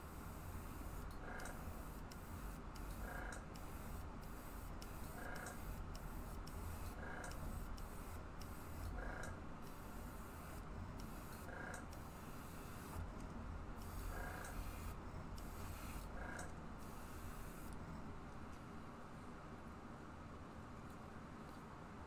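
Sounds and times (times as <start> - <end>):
hiss of air: 0.0 - 9.0, 9.6 - 13.0, 13.8 - 16.2
airbrush compressor hum: 0.0 - 17.8.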